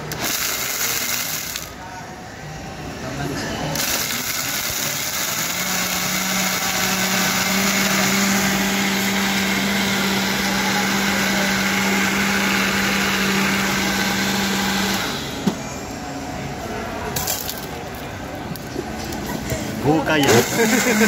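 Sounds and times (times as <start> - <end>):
blender motor running: 0.0 - 1.7, 3.8 - 15.4, 20.2 - 21.0.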